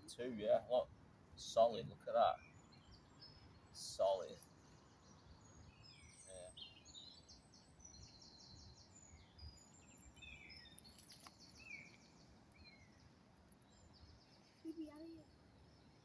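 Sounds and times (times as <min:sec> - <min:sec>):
small birds chirping and trilling: 0:00.0 - 0:16.0.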